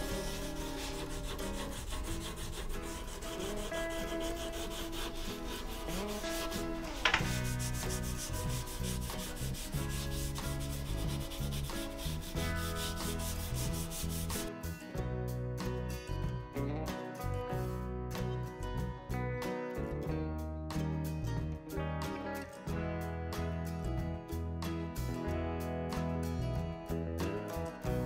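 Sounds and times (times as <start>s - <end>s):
hand sanding strokes: 0.0s - 14.5s
background music: 0.0s - 28.0s.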